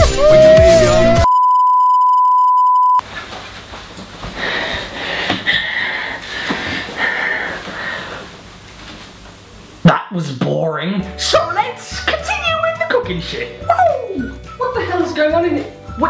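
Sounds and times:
song playing: 0.0 - 1.3
loud electronic beep: 1.2 - 3.0.

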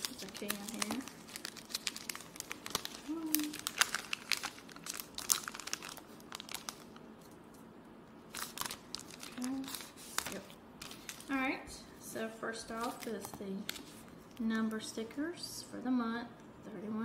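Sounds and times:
plastic sleeve crinkling: 0.0 - 7.4, 8.3 - 11.5, 12.7 - 14.8.

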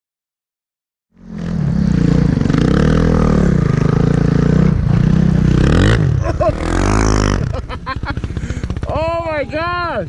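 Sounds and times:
motorbike engine revving: 1.2 - 9.3.

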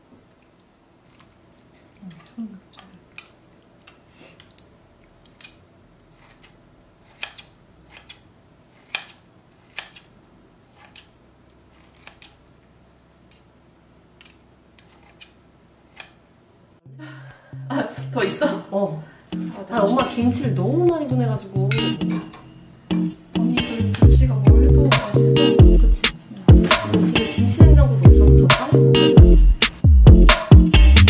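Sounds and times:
scissors snipping in a metal pot: 5.2 - 5.6, 6.2 - 8.2, 8.8 - 10.1, 11.8 - 12.4.

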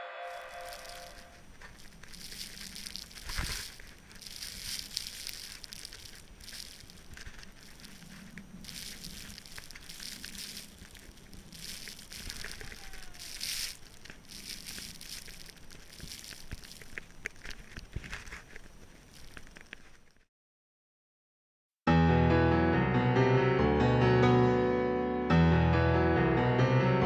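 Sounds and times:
wind-blown snow hissing on camera: 0.3 - 19.9.

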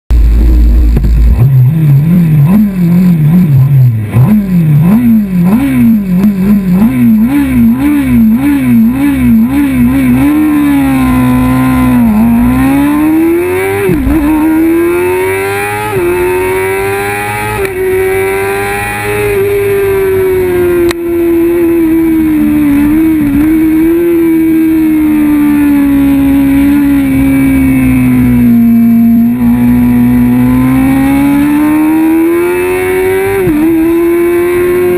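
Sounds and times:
motorcycle engine revving: 0.1 - 34.9
other racing motorcycles: 0.1 - 34.9.

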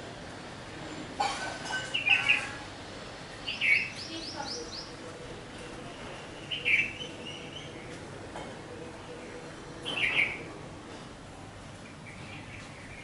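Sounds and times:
birds chirping: 3.4 - 8.1, 8.7 - 10.6, 11.8 - 13.0.

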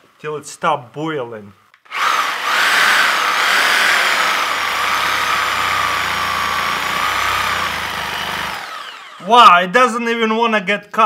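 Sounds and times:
electric saw cutting: 1.9 - 9.3
low pulsing: 3.0 - 9.1.

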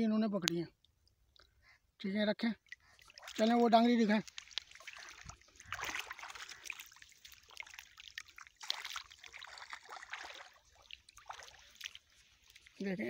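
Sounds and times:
person wading through water: 2.6 - 13.0.

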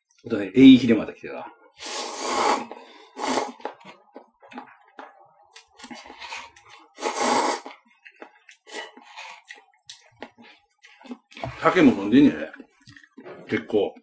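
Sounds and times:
person slurping noodles: 1.8 - 3.7, 5.8 - 7.8.

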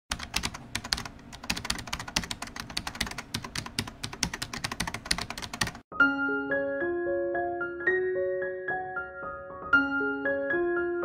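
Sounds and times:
computer keyboard typing: 0.1 - 5.8.

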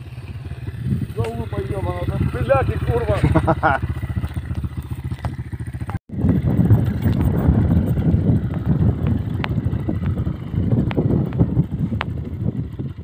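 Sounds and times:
dirt bike engine running: 0.0 - 13.0
sharp ticks: 1.0 - 6.0, 8.4 - 12.2.

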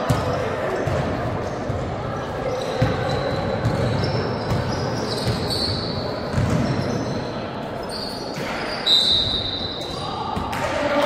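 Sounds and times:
indoor hall background noise: 0.0 - 11.0
basketball bouncing: 2.8 - 5.5, 6.3 - 6.8
short high squeaks: 6.7 - 10.0.

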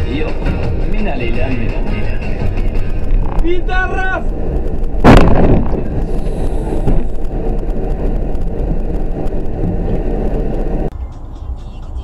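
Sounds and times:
road and engine noise: 0.0 - 12.0
car collision bang: 5.0 - 6.0.

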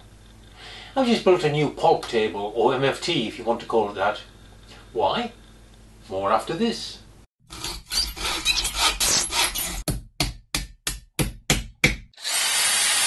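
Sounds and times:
hand tool scraping wood: 7.5 - 9.9.

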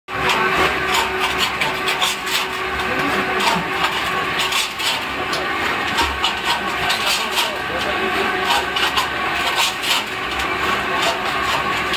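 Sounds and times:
electric mortar mixer running: 0.1 - 11.9
gritty scrapes and clacks: 0.1 - 11.9.

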